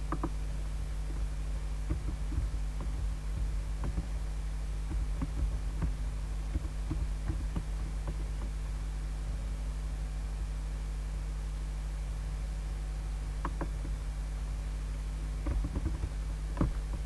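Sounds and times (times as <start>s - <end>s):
faint irregular clicks: 0.0s - 9.5s, 13.3s - 14.1s, 15.4s - 17.0s
low electrical hum: 0.0s - 17.0s.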